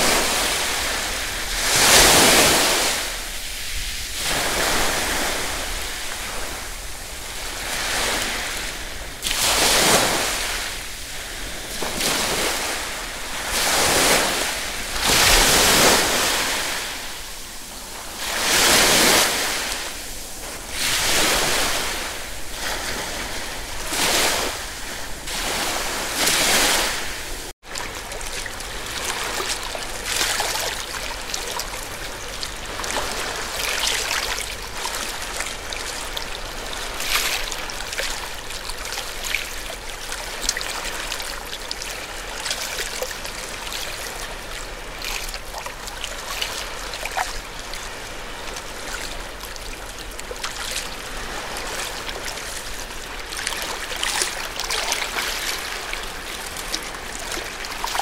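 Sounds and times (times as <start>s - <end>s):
sea waves surging: 0.0s - 58.0s
water splashing among rocks: 11.7s - 17.2s, 18.3s - 58.0s.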